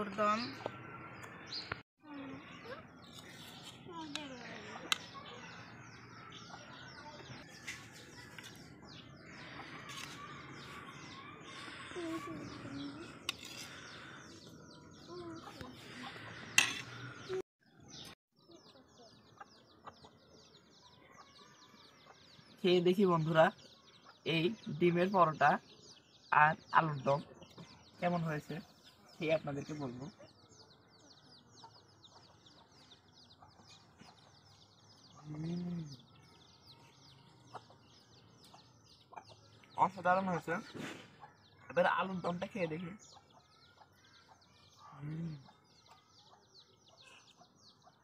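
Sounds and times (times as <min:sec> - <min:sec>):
small birds chirping: 0:00.0 - 0:48.0
person humming mmm: 0:35.3 - 0:36.0.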